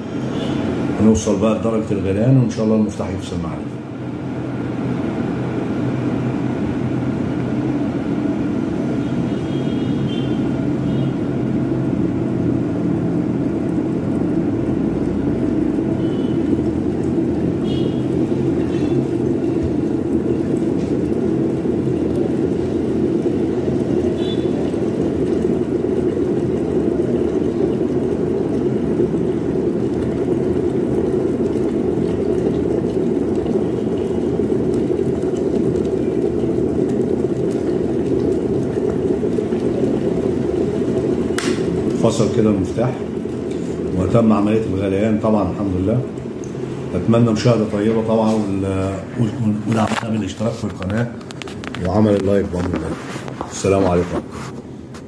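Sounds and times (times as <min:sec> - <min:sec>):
electric kettle boiling: 0:00.0 - 0:55.0.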